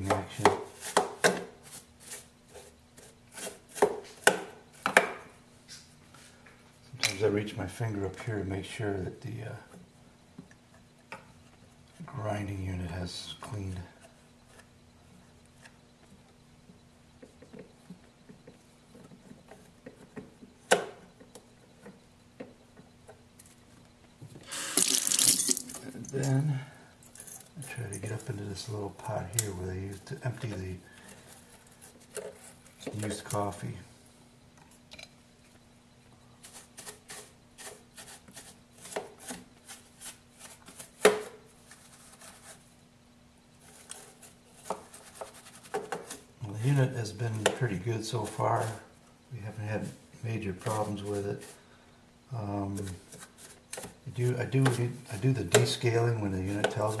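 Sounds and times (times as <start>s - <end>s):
brush sweeping on plastic: 36.4s - 42.7s, 49.8s - 51.7s.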